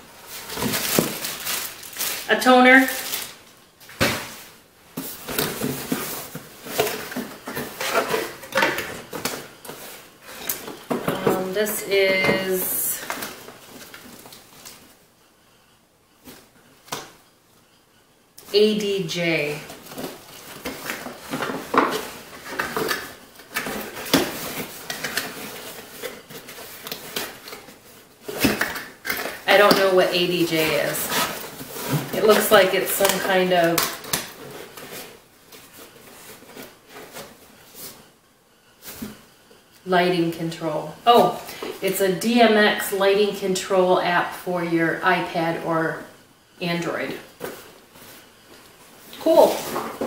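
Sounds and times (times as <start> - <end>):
items shifting in cardboard box: 0.2 - 14.8, 19.4 - 38.0, 49.0 - 50.0.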